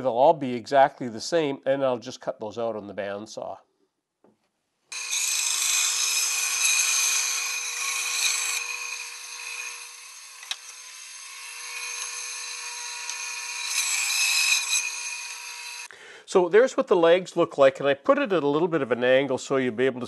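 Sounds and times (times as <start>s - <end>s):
bandsaw cutting wood: 4.9s - 15.9s.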